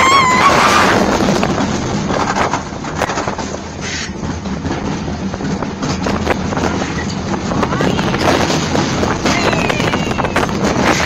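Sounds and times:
high wail: 0.0 - 1.0
roller coaster rushing and rattling: 0.0 - 11.0.

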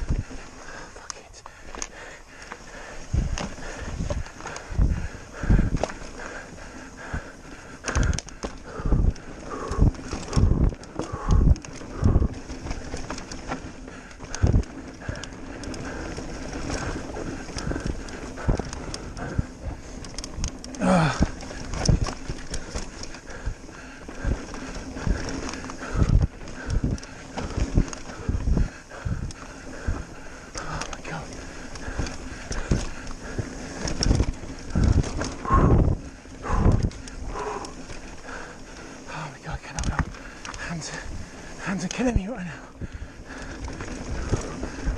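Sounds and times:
bike frame rattling: 0.0 - 44.9
bike tyres rolling over dirt: 0.0 - 44.9
wind on microphone: 2.8 - 30.2, 31.1 - 38.5
bike thumping over bumps: 3.1 - 6.6.

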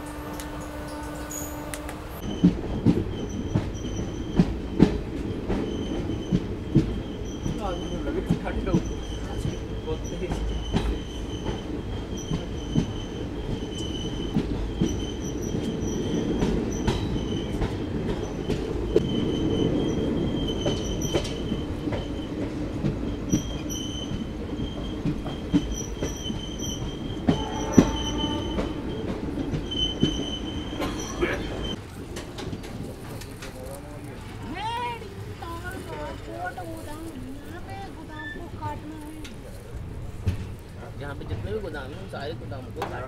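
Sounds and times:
high wheel squeal: 0.0 - 4.5, 5.6 - 17.6, 18.2 - 22.4, 23.1 - 31.8
train rumbling on rails: 0.0 - 43.0
wheels clicking over rail joints: 1.7 - 43.0.

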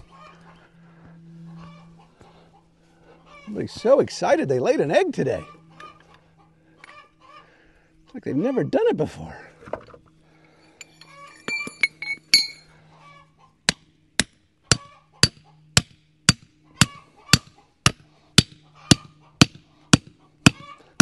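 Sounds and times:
hammer striking a stake: 13.7 - 20.7.

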